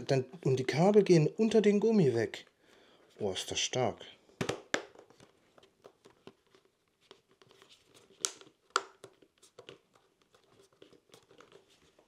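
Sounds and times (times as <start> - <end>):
plastic clicks and rustles: 4.4 - 12.0.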